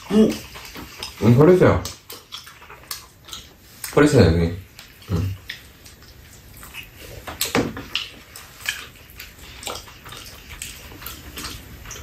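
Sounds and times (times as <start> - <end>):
wet chewing: 0.0 - 12.0
lip smacks: 4.7 - 12.0.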